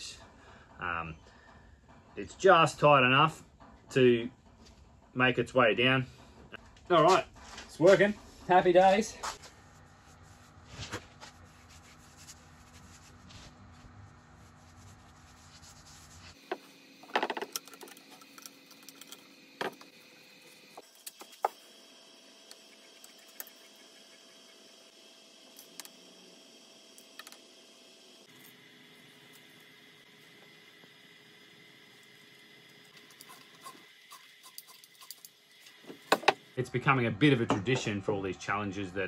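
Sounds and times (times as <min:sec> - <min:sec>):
brush on wood surface: 0:09.2 - 0:16.7.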